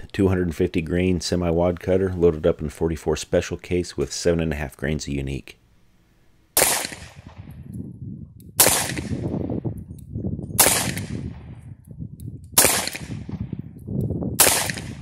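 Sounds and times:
revolver shots: 6.6 - 7.5, 8.6 - 9.4, 10.6 - 11.3, 12.6 - 13.4, 14.4 - 15.0.

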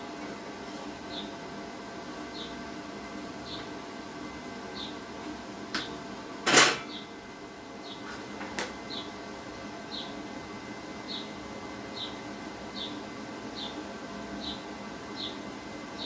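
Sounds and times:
steady electrical hum: 0.0 - 16.0
metallic clunk: 6.5 - 6.9.

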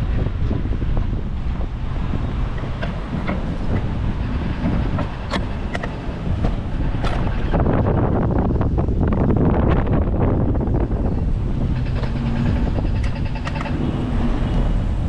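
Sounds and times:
wind rumbling on microphone: 0.0 - 15.0
bicycle clicks and rattles: 11.7 - 13.8.

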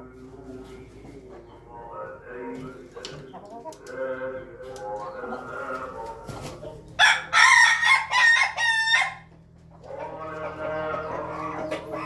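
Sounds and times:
rooster crowing: 7.0 - 9.3.

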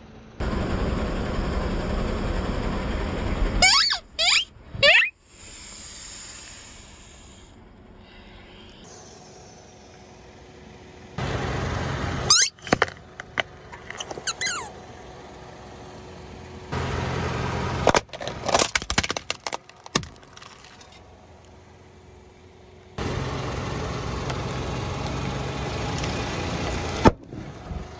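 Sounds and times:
car running: 0.0 - 27.9
rubber toy squeaking: 3.6 - 5.1, 12.3 - 14.8
plastic toy cracking and snapping: 17.9 - 20.9.

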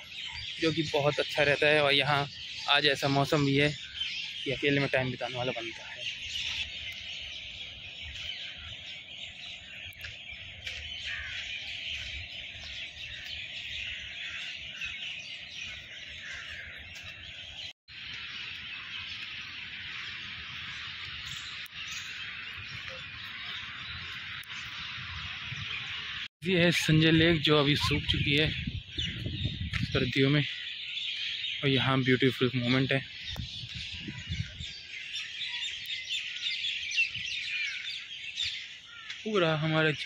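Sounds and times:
high chirping from trees: 0.0 - 40.0
wind rumble: 5.8 - 30.4, 33.1 - 34.9
microphone handling: 27.8 - 30.0.

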